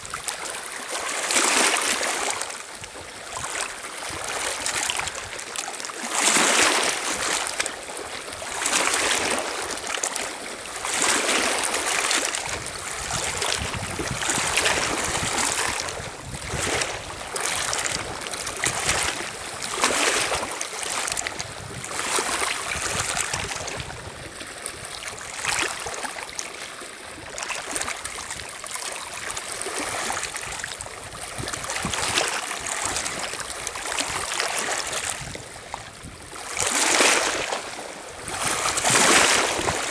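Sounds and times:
waves lapping on pebble shore: 0.0 - 39.9.

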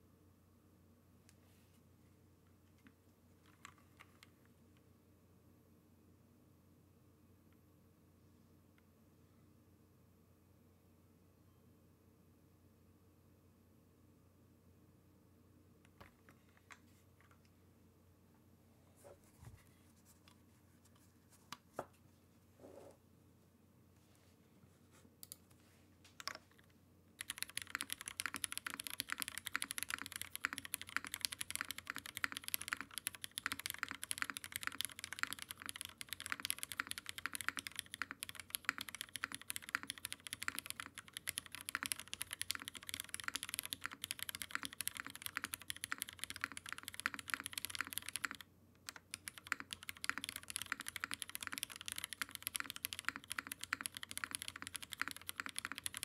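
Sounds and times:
mechanical keyboard typing: 26.2 - 26.6, 27.2 - 56.0.

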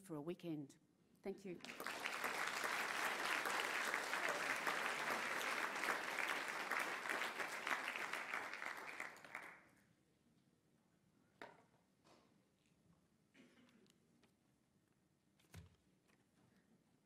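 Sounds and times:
audience applauding: 1.6 - 9.7.

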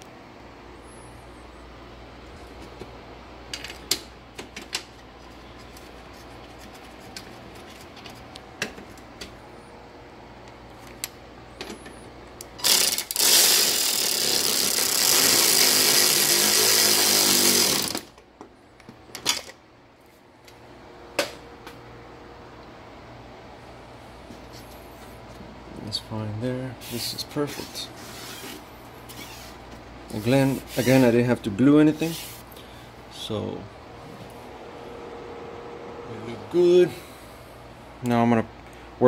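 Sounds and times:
power driver running bolt: 12.4 - 18.2.

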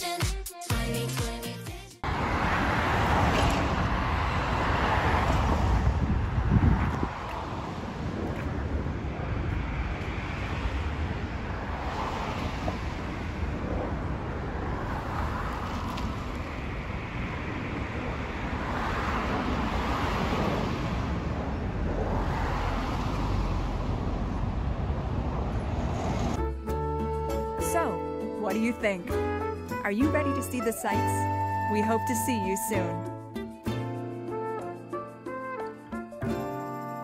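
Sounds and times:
road traffic passing: 2.0 - 36.4
jet engine rumble: 2.1 - 26.4.

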